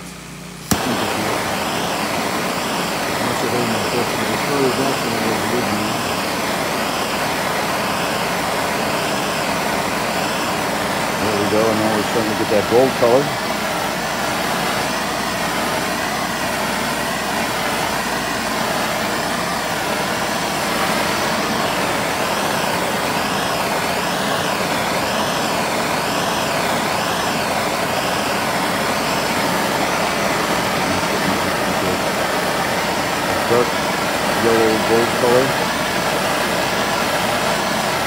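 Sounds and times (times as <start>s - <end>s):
gas torch flame hissing: 0.0s - 38.0s.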